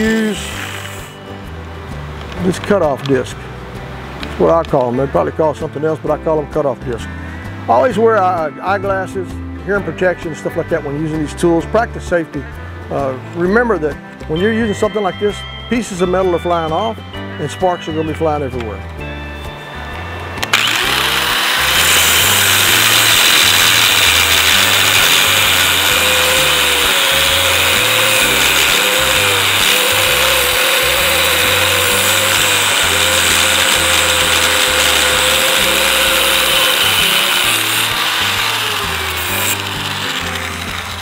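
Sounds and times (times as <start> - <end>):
angle grinder cutting steel: 0.0 - 1.4, 20.4 - 41.0
background music: 0.0 - 41.0.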